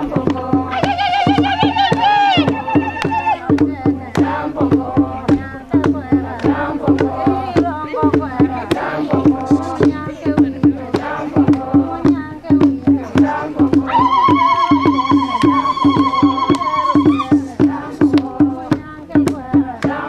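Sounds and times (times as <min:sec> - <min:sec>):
group singing: 0:00.0 - 0:20.0
percussive beat: 0:00.0 - 0:20.0.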